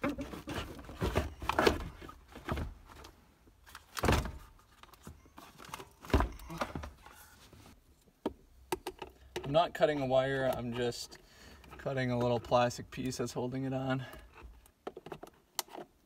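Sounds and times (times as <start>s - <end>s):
hard plastic knocking and scraping: 0.0s - 3.1s.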